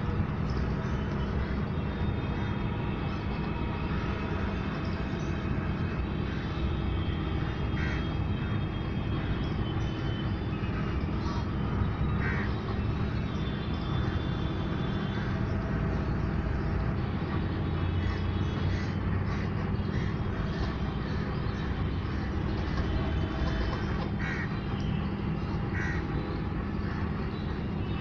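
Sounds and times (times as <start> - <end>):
low background rumble: 0.0 - 28.0
geese honking: 7.4 - 8.5, 12.2 - 12.5, 22.1 - 24.5, 25.7 - 26.0.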